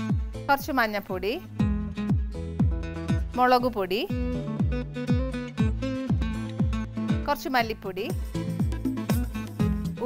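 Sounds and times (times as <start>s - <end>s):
plucked acoustic guitar: 4.2s - 7.3s
steady beat: 8.2s - 10.0s.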